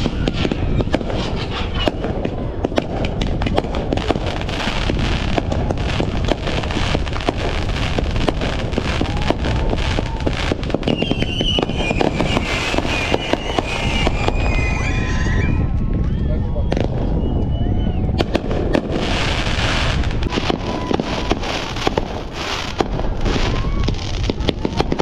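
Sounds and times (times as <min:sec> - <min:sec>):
high whistling tone: 0:00.0 - 0:02.1, 0:10.8 - 0:18.2
fireworks crackling and banging: 0:00.0 - 0:16.1, 0:16.7 - 0:25.0
low rumble: 0:00.0 - 0:24.8.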